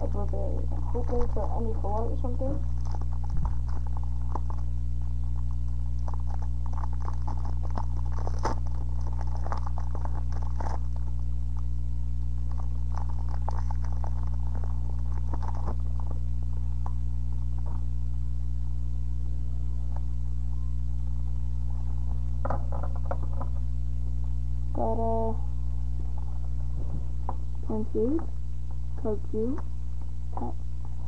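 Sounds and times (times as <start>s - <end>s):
low electrical hum: 0.0s - 31.0s
foil wrapper crinkling: 0.1s - 17.9s.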